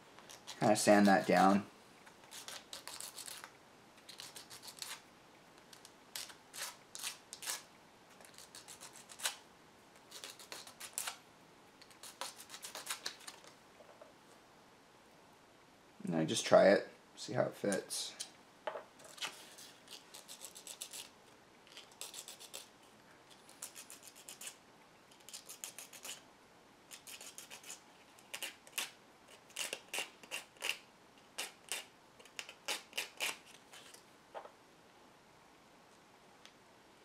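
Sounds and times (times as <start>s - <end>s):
sandpaper rubbing plastic: 2.2s - 3.5s, 4.1s - 5.0s, 10.1s - 11.2s, 11.9s - 13.4s, 19.2s - 21.1s, 21.8s - 22.7s, 23.5s - 24.6s, 26.9s - 30.8s.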